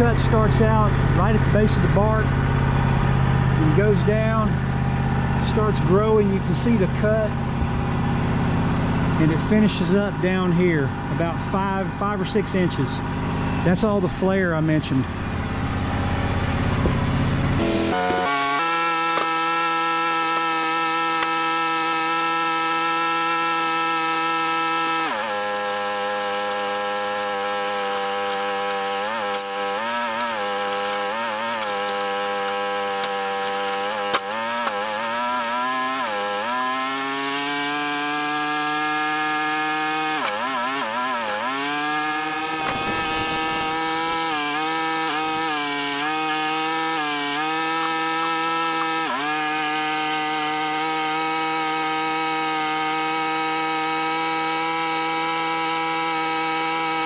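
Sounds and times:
saw blade cutting a log: 0.0 - 4.7, 5.4 - 7.4, 8.5 - 57.0
sawmill engine running: 0.0 - 57.0.

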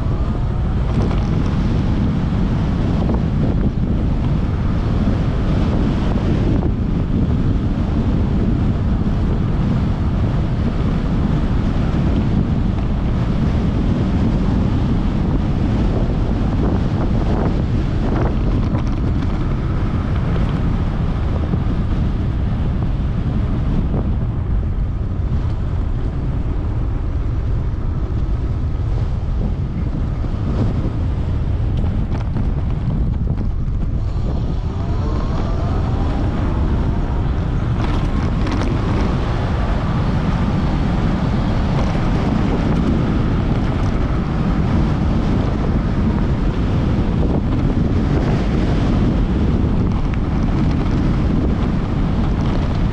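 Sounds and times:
wind rushing over microphone: 0.0 - 52.9
faint whine rising in pitch: 33.5 - 40.0.

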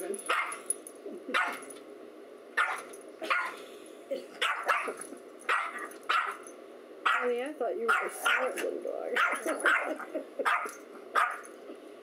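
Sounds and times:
small dog barking: 0.3 - 0.6, 1.3 - 1.6, 2.6 - 3.6, 4.4 - 6.4, 7.0 - 7.3, 7.9 - 8.6, 9.2 - 11.4.

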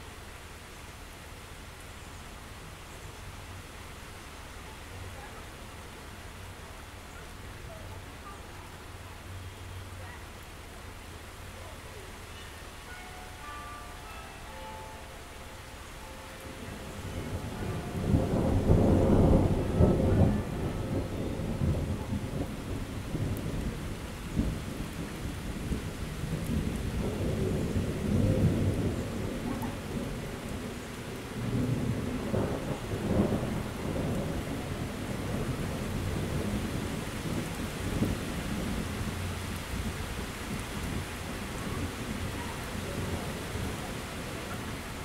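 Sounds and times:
steady rain: 0.0 - 45.0
thunder rolling and rumbling: 16.6 - 45.0.

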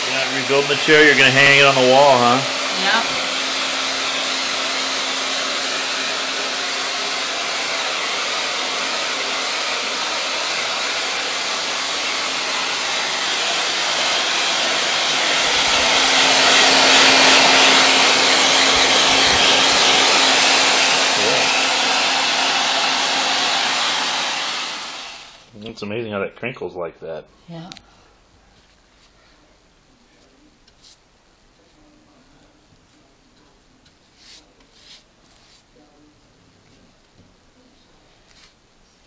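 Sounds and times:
hair dryer blowing: 0.0 - 25.5.

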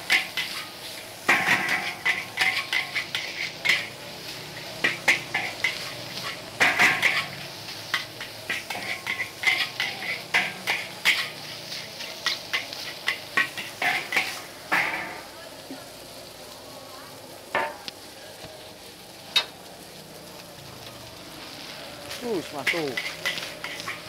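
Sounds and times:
metal spatula scraping a wok: 0.0 - 15.3, 21.4 - 24.0.

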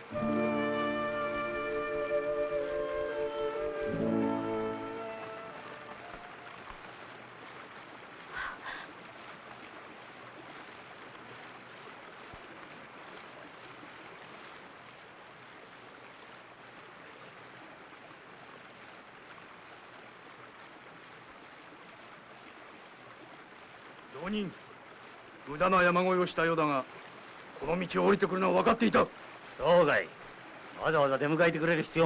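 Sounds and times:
river water rushing: 0.0 - 32.0.

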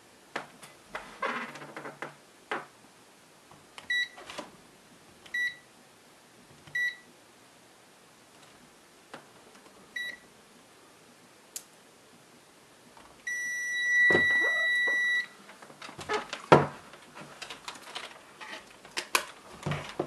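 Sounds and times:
multimeter beeping: 13.3 - 15.4.

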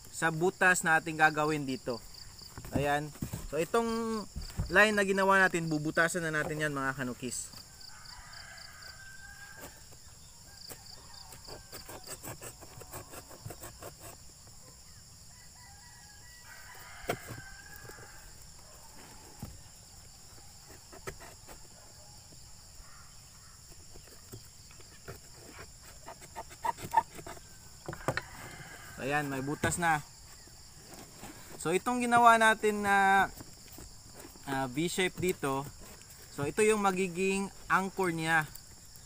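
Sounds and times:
insects chirring: 0.0 - 39.0
rooster crowing: 7.6 - 12.2, 15.3 - 19.4, 27.9 - 30.1
screwdriver scraping cardboard: 10.7 - 14.3, 20.6 - 21.9, 24.2 - 28.6.

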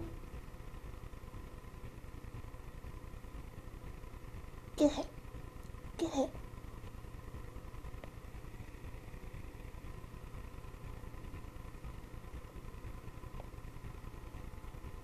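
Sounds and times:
low rumbling hum: 0.0 - 15.0.

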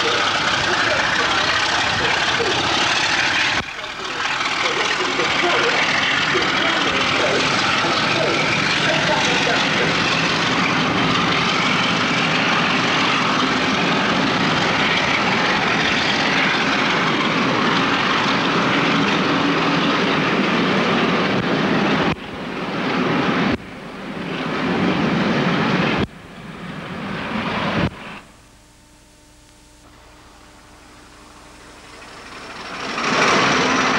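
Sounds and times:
coaches rumbling past: 0.0 - 23.6
diesel locomotive engine: 0.0 - 33.9.

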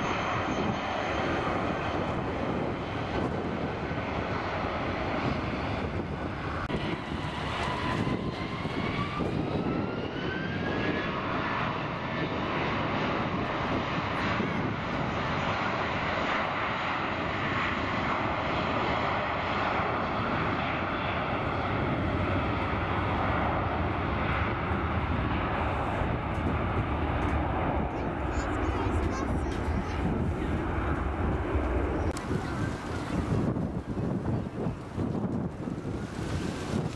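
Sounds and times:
jet engines spooling up: 0.0 - 11.4.

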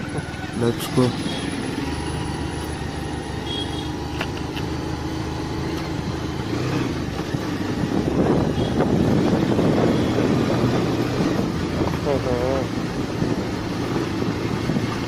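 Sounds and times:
motorcycle engine running: 0.0 - 15.0
wind rushing over microphone: 5.9 - 15.0.

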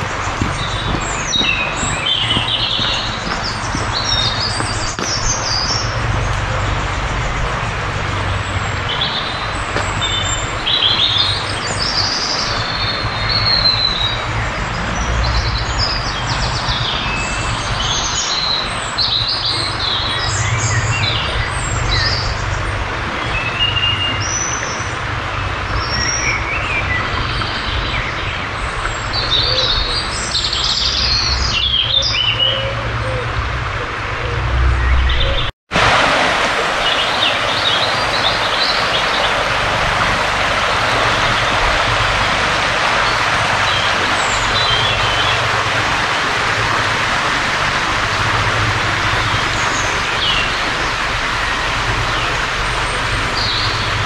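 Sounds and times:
steady low rush: 0.0 - 12.1, 33.3 - 54.0
songbirds singing: 0.0 - 54.0.

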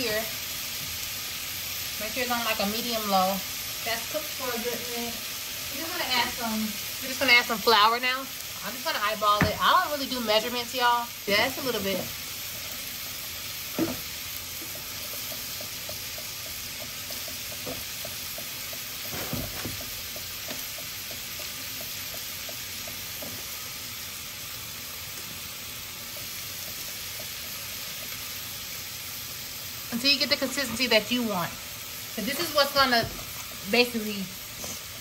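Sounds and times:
vegetables sizzling in a saucepan: 0.0 - 35.0
whisk ticking against pan: 14.5 - 19.2, 19.8 - 23.6, 25.8 - 28.7.

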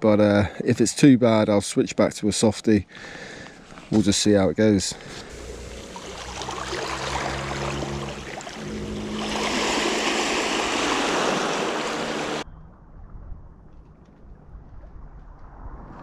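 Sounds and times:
small waves washing on beach: 5.0 - 12.4
fishing reel whirring: 5.3 - 12.4.

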